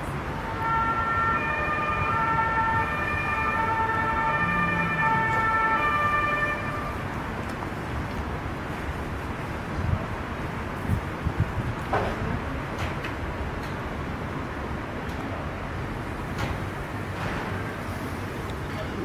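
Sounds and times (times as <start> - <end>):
funfair background noise: 0.0 - 19.0
siren-like steady tones: 0.3 - 7.1.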